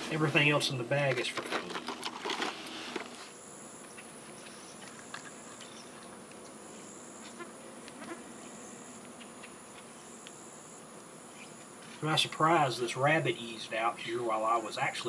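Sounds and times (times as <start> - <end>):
insects droning high-pitched: 1.8 - 15.0
shrill insect buzzing: 2.6 - 12.0.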